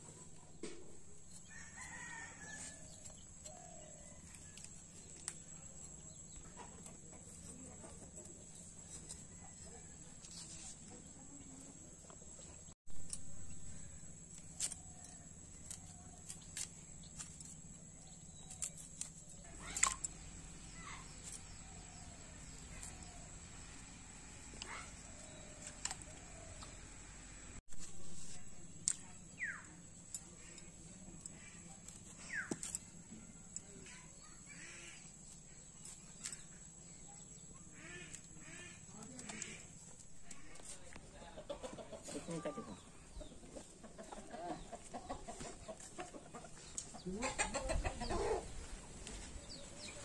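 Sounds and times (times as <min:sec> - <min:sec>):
rustle: 0:06.8 - 0:41.1, 0:45.4 - 0:50.0
bird calls: 0:28.9 - 0:48.6.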